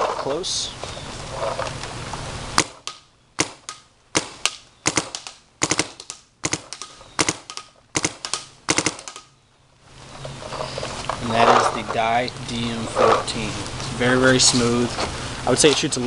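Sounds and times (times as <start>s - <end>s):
paintball marker popping: 2.6s - 9.3s.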